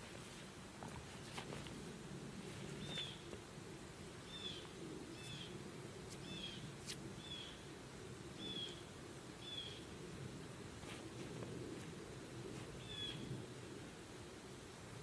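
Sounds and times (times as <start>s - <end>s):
faint low background noise: 0.0s - 15.0s
bird chirping: 4.2s - 5.5s, 6.2s - 7.6s, 9.4s - 9.8s.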